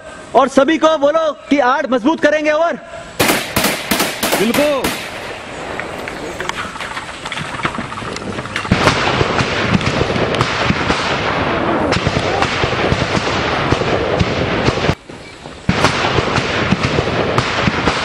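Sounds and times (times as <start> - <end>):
heavy gunfire: 3.2 - 7.1, 8.7 - 15.0, 15.7 - 18.0.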